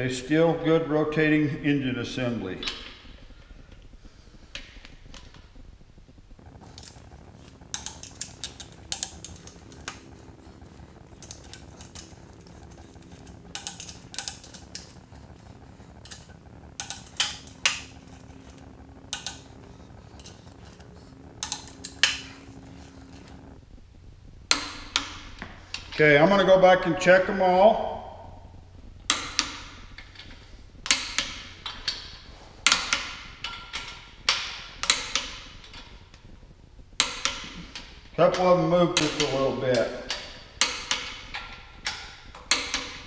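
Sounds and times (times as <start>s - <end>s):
metal tools clinking: 6.6s - 15.1s.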